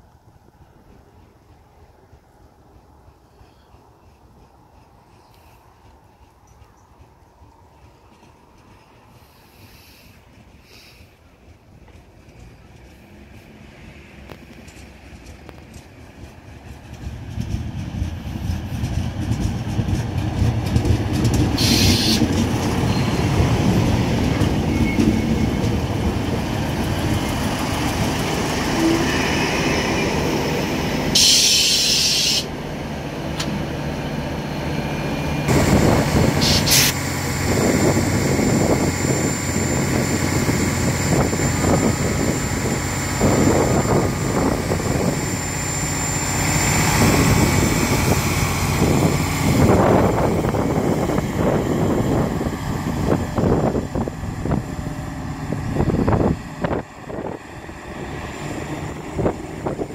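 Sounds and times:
diesel railcar engine running: 0.0 - 59.9
wheels rolling on rails: 4.2 - 28.5
air hissing bursts: 21.6 - 22.2, 31.2 - 32.5, 35.5 - 37.0.

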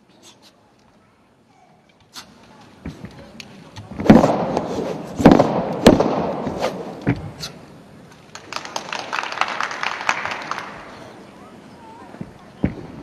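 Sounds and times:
staff cracks and thuds echoing: 4.0 - 7.3.

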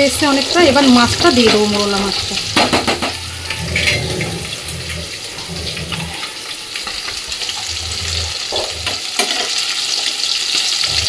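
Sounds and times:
food sizzling in frying pan: 0.0 - 11.0
metal spatula stirring: 0.8 - 4.9.

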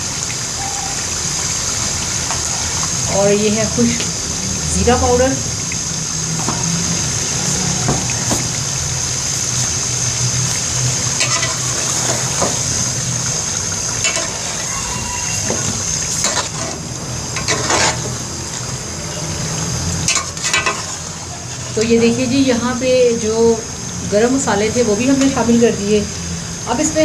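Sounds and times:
curry sizzling and bubbling: 0.0 - 27.0
metal spatula scraping pot: 17.4 - 18.1.

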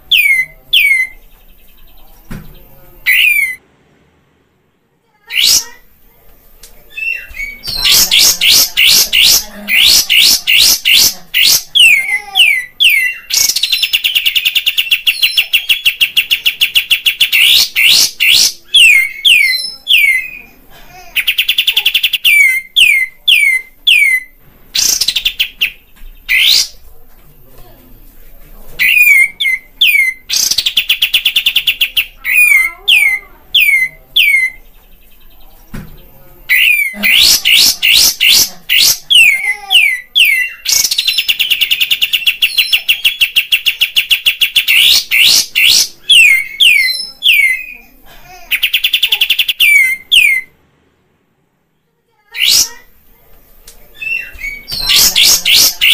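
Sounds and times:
bird singing with trills: 0.1 - 3.6, 36.5 - 47.8, 48.6 - 50.5, 53.9 - 55.9.

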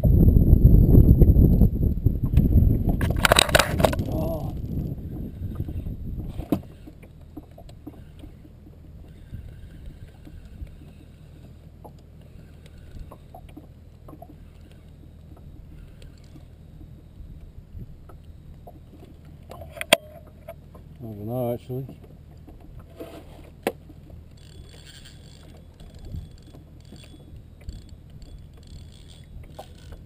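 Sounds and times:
low steady hum: 0.0 - 30.0
small knocks and clicks: 5.6 - 20.9, 21.8 - 30.0.

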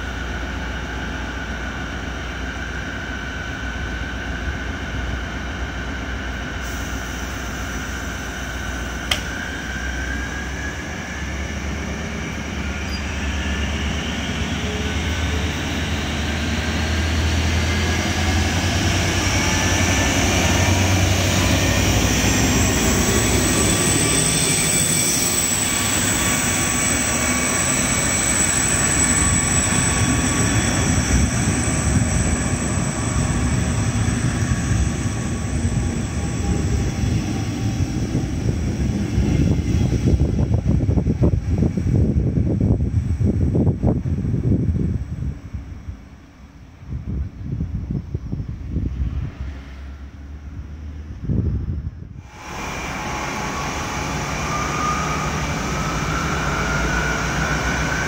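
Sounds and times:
diesel locomotive engine drone: 0.0 - 58.0
locomotive high whine: 0.0 - 58.0
short click: 9.1 - 9.4.

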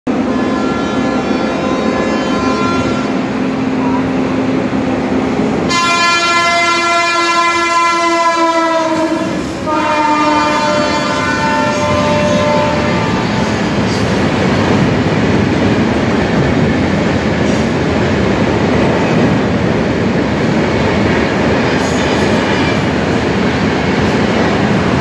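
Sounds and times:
locomotive horn blasts: 0.1 - 4.1, 5.7 - 13.7
train running and clattering: 0.1 - 25.0.

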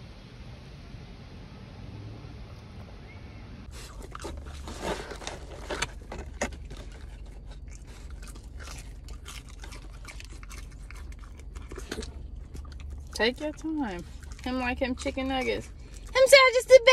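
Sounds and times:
dog crunching food: 3.7 - 16.3.

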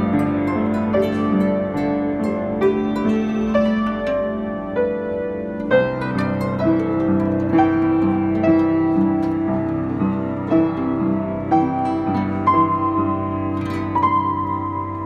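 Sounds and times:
acoustic guitar playing: 0.0 - 15.0
piano chords: 0.0 - 15.0.

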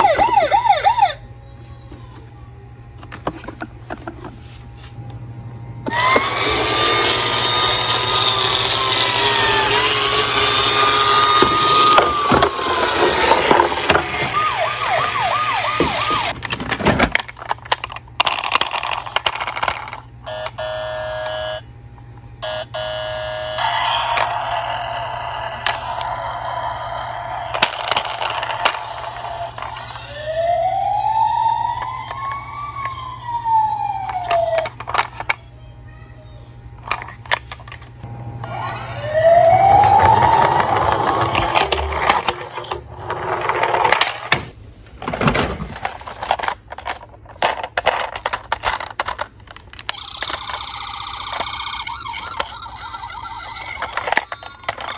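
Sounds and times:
toy siren wailing and yelping: 0.0 - 1.3, 5.9 - 16.4, 20.2 - 21.6, 22.4 - 34.9, 38.4 - 42.2, 49.9 - 54.9.

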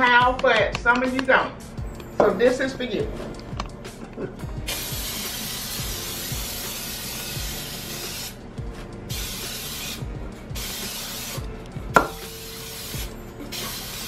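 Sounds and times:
aerosol spray hissing: 4.7 - 8.5, 9.1 - 14.0.

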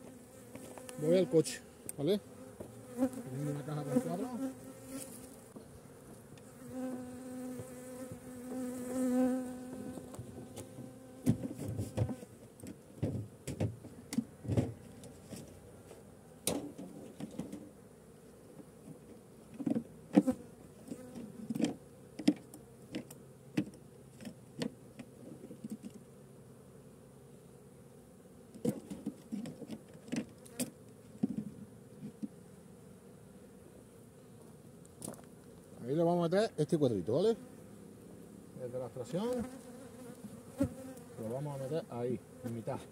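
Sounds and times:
bees buzzing: 0.0 - 36.3, 36.9 - 42.9.

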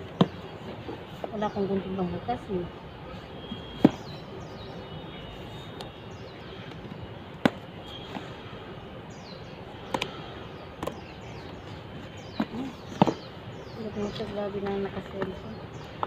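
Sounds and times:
sharp clicks against cardboard: 3.6 - 4.1, 9.9 - 10.1, 10.8 - 11.7, 12.3 - 13.3.

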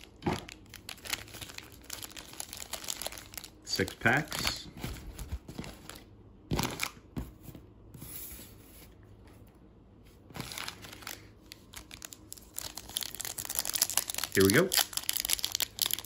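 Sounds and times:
foil wrappers crinkling: 0.0 - 7.0, 10.3 - 16.0.

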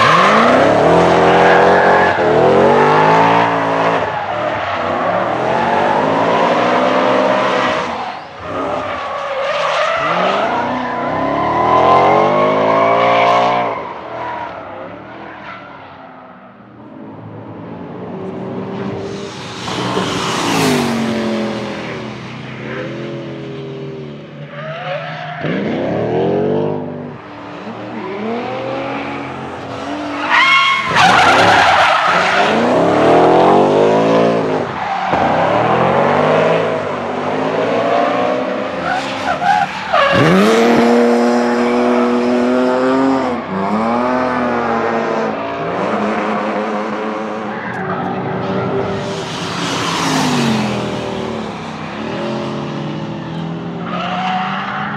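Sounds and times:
car engine revving: 25.4 - 54.7.

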